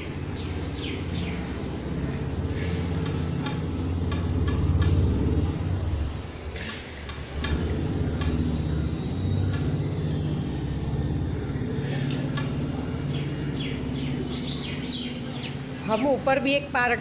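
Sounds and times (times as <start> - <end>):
low engine-like hum: 0.0 - 17.0
bird chirps: 9.0 - 16.0.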